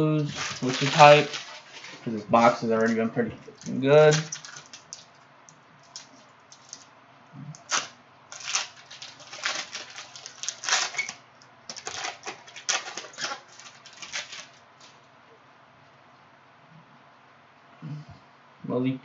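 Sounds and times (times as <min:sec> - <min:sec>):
plastic wrapper crinkling: 0:00.0 - 0:05.2, 0:05.8 - 0:06.9, 0:07.6 - 0:15.0.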